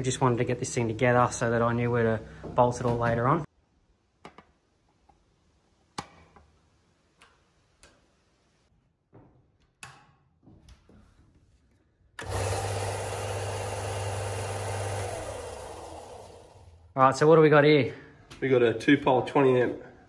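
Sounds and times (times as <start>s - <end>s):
sander motor hum: 12.2s - 16.8s.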